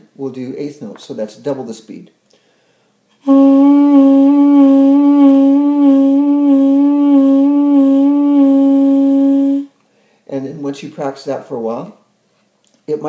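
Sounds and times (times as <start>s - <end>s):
duduk note with vibrato: 3.2s - 9.7s.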